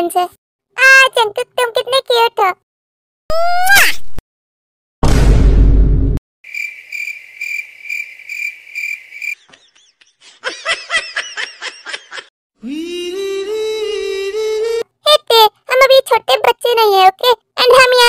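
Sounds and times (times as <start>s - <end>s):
cricket chirp sound effect: 6.5s - 9.4s.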